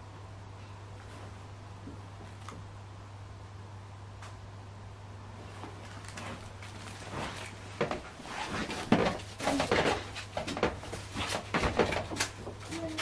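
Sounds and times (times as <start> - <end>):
steady low hum: 0.0 - 13.0
knocks clicks and rustles: 5.8 - 13.0.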